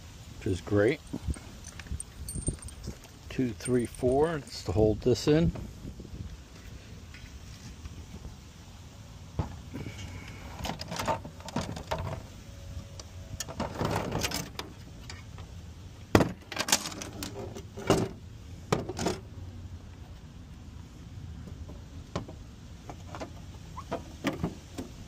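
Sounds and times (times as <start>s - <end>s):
metal parts knocking and scraping: 13.4s - 15.3s, 16.2s - 19.2s.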